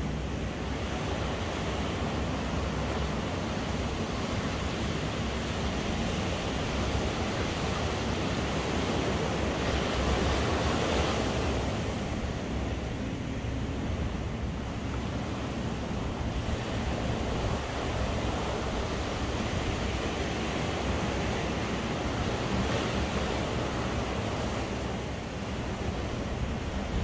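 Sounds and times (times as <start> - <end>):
ocean surf breaking: 0.0 - 27.0
wind rumble on microphone: 0.0 - 27.0.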